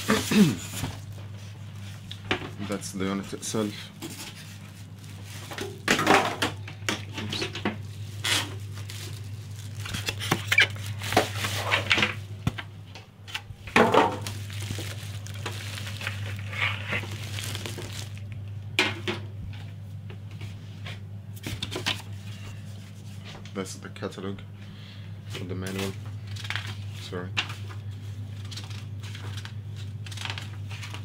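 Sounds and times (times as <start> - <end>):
plastic bag crinkling: 4.4 - 5.9, 7.7 - 11.9, 14.0 - 18.5.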